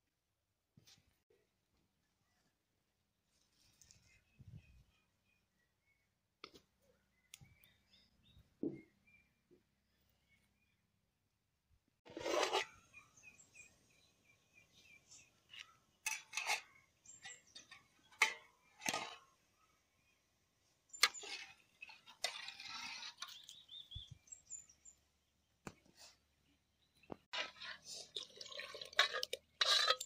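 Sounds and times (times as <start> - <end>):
birds chirping: 12.7 - 27.3.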